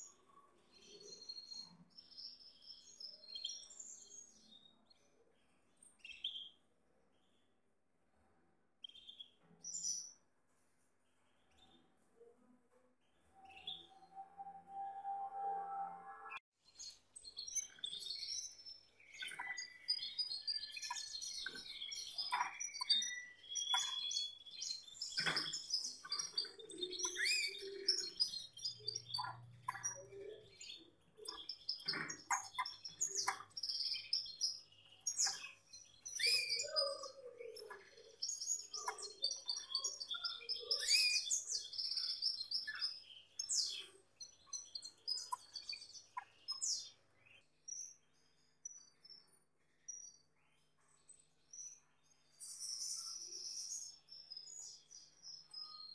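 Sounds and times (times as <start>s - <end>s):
canary singing: 17.3s - 48.0s.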